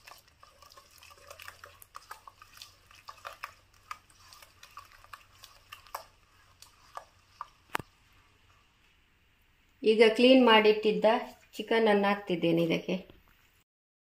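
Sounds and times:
fingers squelching wet paste: 0.0 - 8.8.

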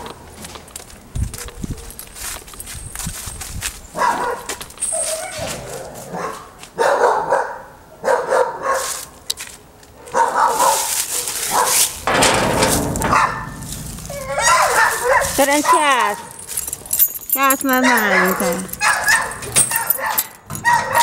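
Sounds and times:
dog barking: 4.0 - 4.5, 6.1 - 9.0, 10.0 - 11.9, 14.2 - 16.3, 17.8 - 21.0.

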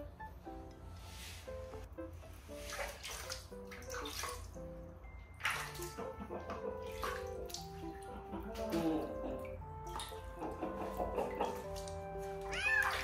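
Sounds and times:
background music: 0.0 - 13.0
water splashing and dripping: 2.4 - 13.0.

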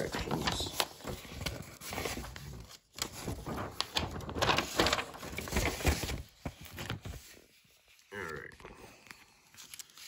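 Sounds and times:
paper rustling and crinkling: 0.0 - 10.0.

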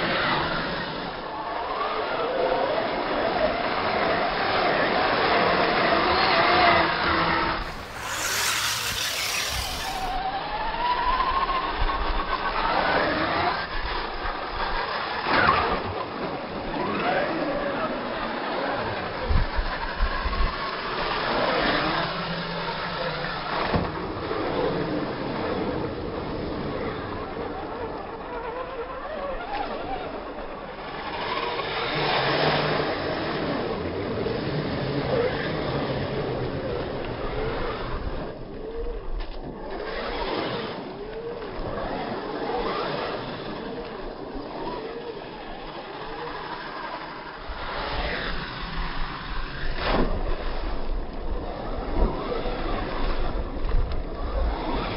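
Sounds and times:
electric motors whining: 6.0 - 11.2.

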